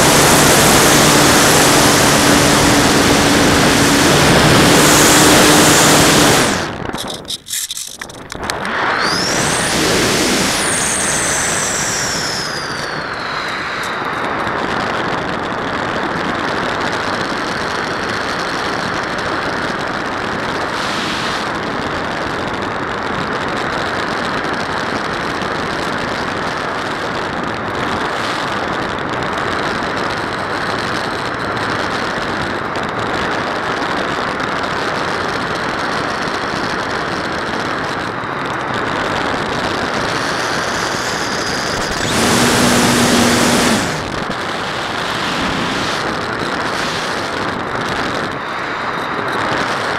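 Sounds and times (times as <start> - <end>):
airflow rushing: 0.0 - 7.2, 20.6 - 21.7, 40.7 - 48.8
electric motor whine: 0.0 - 7.3, 8.6 - 14.5, 20.6 - 21.6, 39.8 - 49.4.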